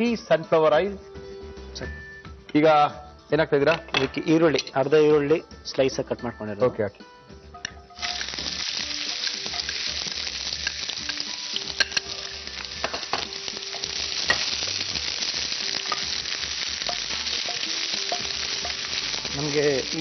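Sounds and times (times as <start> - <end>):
onions sizzling in oil: 8.0 - 20.0.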